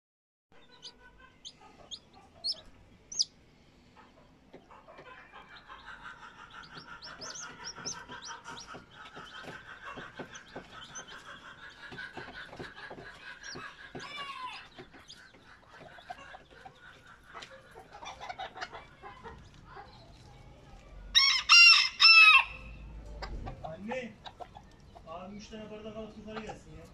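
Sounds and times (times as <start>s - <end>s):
chicks peeping: 0.6s - 21.3s, 22.8s - 26.9s
rooster crowing: 21.1s - 22.8s.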